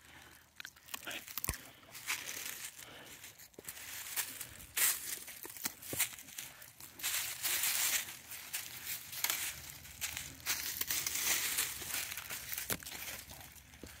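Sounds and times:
dry leaves crunching: 0:00.8 - 0:14.0.

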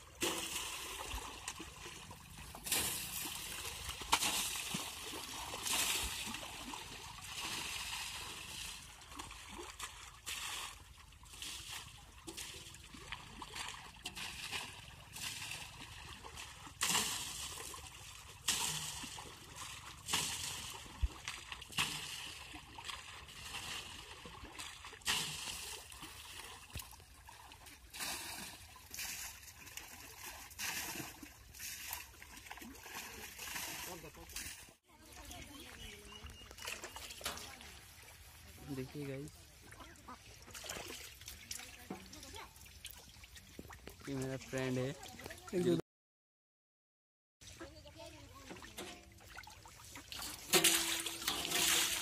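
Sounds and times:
shallow water sloshing: 0:00.0 - 0:45.8, 0:47.4 - 0:52.0
water splashing on tyre: 0:48.3 - 0:52.0.

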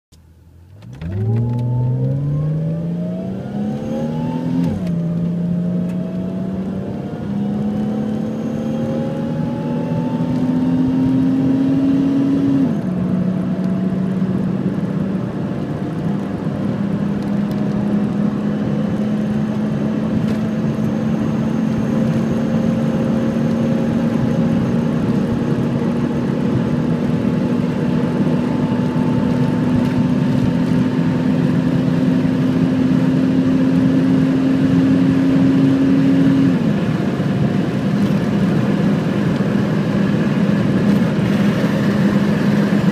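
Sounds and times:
road and wind noise: 0:00.1 - 0:42.9
car engine accelerating hard: 0:00.6 - 0:42.9.

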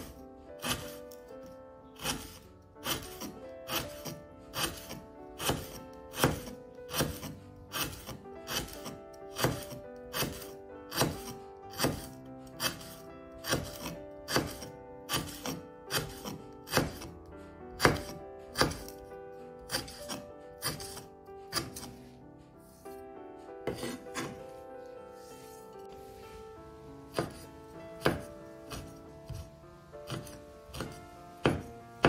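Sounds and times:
background music: 0:00.0 - 0:32.0
knife chopping on wooden board: 0:00.6 - 0:00.9, 0:02.0 - 0:17.1, 0:17.8 - 0:19.0, 0:19.7 - 0:21.9, 0:23.7 - 0:24.4, 0:27.1 - 0:29.5, 0:30.1 - 0:31.7.

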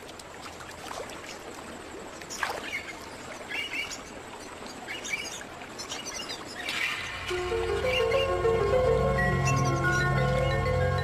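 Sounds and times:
flowing water hiss: 0:00.0 - 0:11.0
birds chirping: 0:02.2 - 0:11.0.

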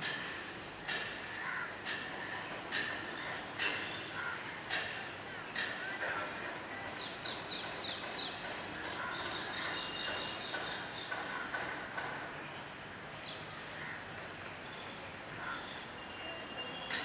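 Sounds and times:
small birds chirping: 0:05.4 - 0:12.4.

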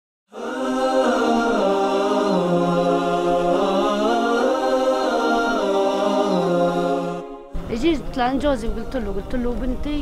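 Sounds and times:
voices singing a cappella: 0:00.3 - 0:07.6.

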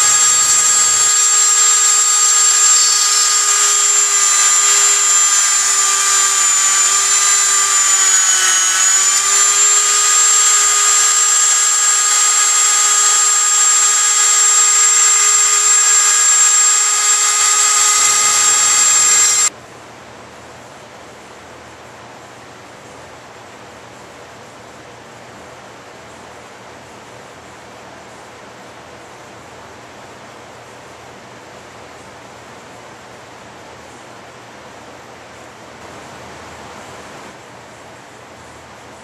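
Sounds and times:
rotary tool high-pitched whine: 0:00.0 - 0:19.5.

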